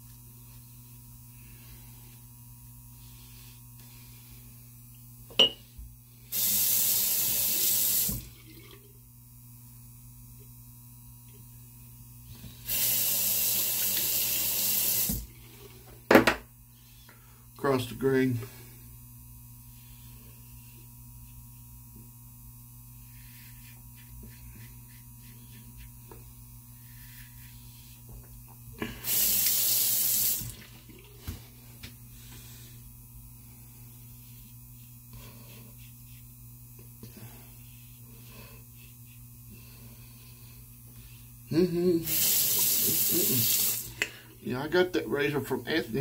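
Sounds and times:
steady low hum: 0:00.0 - 0:12.7, 0:15.1 - 0:46.0
faucet running: 0:06.3 - 0:08.9, 0:12.7 - 0:15.6, 0:29.0 - 0:31.1, 0:42.0 - 0:44.0.

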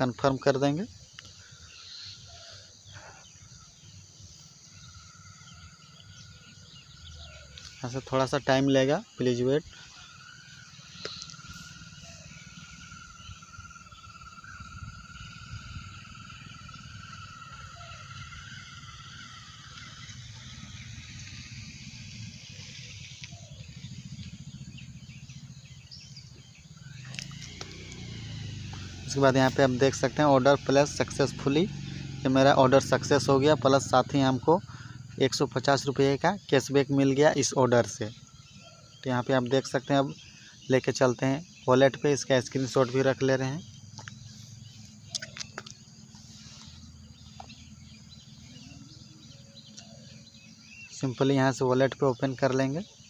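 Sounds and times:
faint bird chirps: 0:00.0 - 0:53.0
faint distant calls: 0:00.0 - 0:53.0
low hum: 0:09.0 - 0:35.3.

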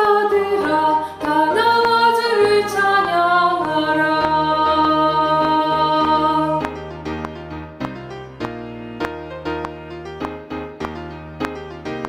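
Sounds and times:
soprano voice singing a hymn: 0:00.0 - 0:06.6
piano accompaniment: 0:00.0 - 0:12.0.

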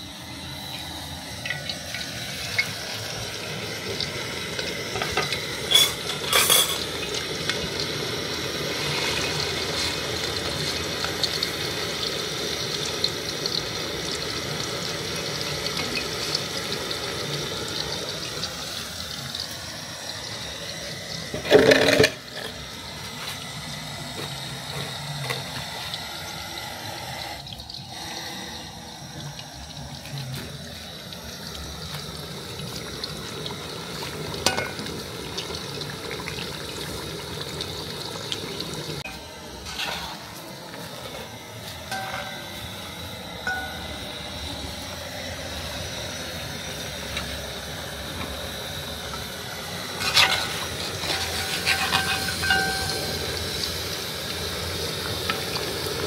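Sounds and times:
tofu sizzling in hot oil: 0:00.4 - 0:28.0, 0:28.7 - 0:40.4, 0:41.3 - 0:56.0
metal spatula knocking on pot: 0:51.8 - 0:53.0.

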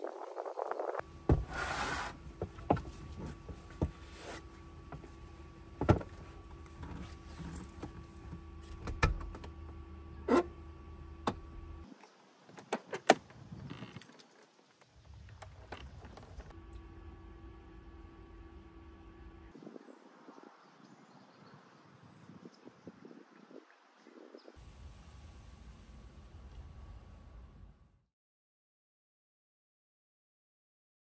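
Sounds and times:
steady hum: 0:16.2 - 0:20.6, 0:24.6 - 0:28.0.

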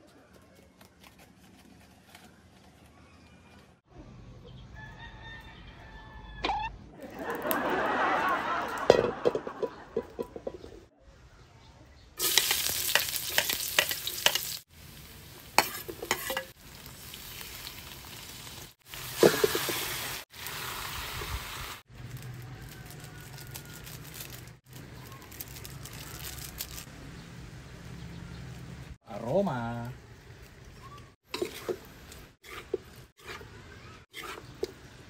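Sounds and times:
oil crackles: 0:07.0 - 0:07.7, 0:12.2 - 0:26.9, 0:29.7 - 0:33.1
food sizzling in oil: 0:12.2 - 0:26.9, 0:30.0 - 0:33.5.

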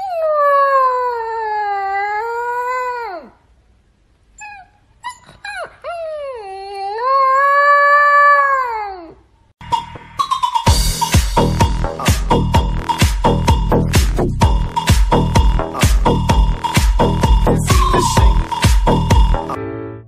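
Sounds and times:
puppy howling: 0:00.0 - 0:03.3, 0:04.4 - 0:09.2
puppy yips: 0:04.4 - 0:07.6.

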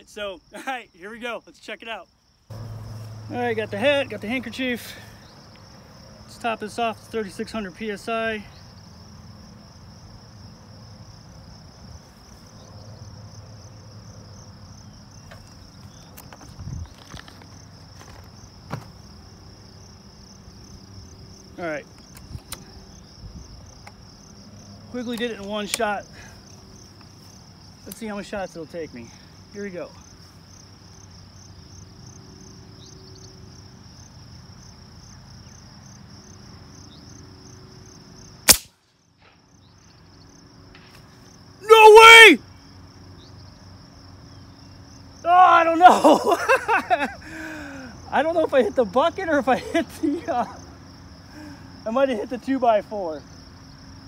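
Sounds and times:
insects chirring: 0:00.0 - 0:54.0
low outdoor rumble: 0:02.5 - 0:05.3
dull thump: 0:18.0 - 0:19.0.

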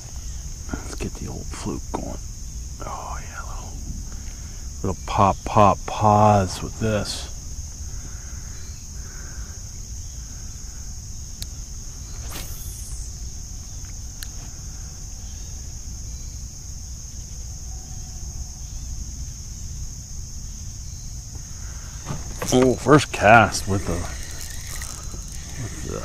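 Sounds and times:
insects chirping: 0:00.0 - 0:26.0
fishing rod swish: 0:12.2 - 0:13.1.

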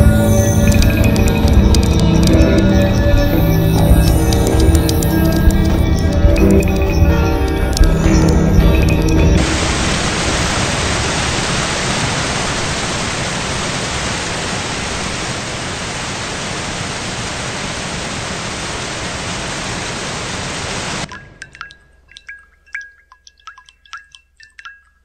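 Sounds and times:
music: 0:00.0 - 0:10.1
electronic noise hiss: 0:00.0 - 0:21.4.

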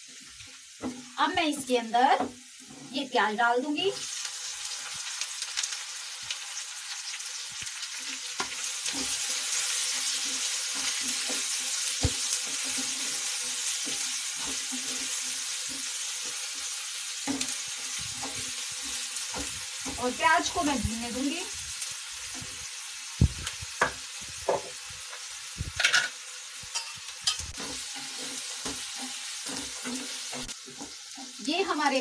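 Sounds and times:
onions sizzling in oil: 0:00.0 - 0:32.0
wooden spatula scraping pan: 0:07.9 - 0:22.7, 0:23.3 - 0:31.4.

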